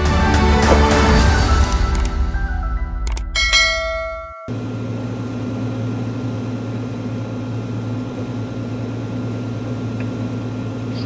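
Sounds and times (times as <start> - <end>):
propeller plane engine droning: 4.5 - 11.0.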